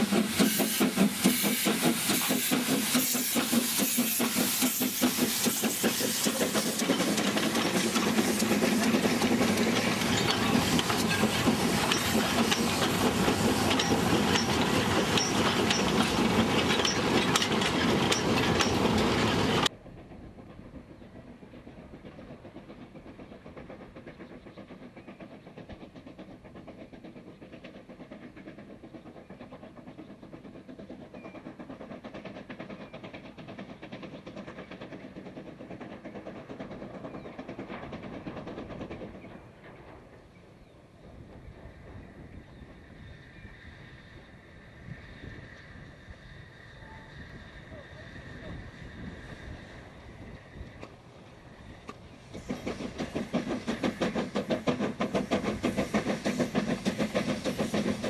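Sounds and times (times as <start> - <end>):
steam hiss: 0.0 - 19.7, 41.1 - 58.0
distant steam locomotive: 0.0 - 58.0
steam locomotive chuffing: 0.0 - 58.0.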